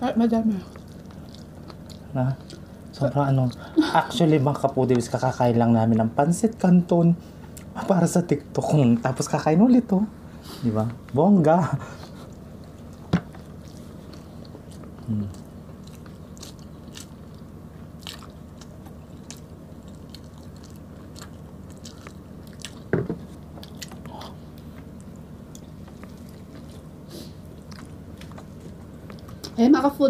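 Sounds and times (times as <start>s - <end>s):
steady low hum: 0.0s - 30.0s
wet chewing: 0.6s - 3.7s, 12.0s - 29.6s.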